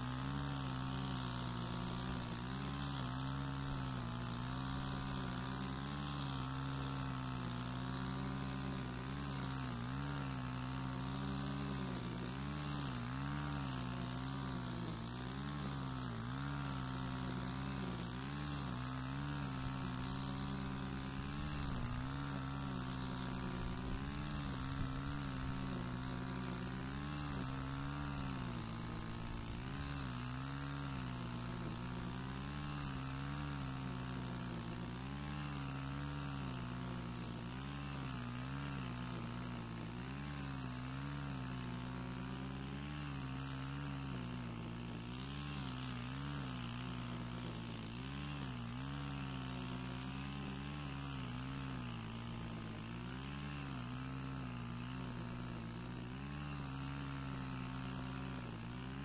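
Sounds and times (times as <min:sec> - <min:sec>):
brush cutter cutting grass: 0:00.0 - 0:59.0.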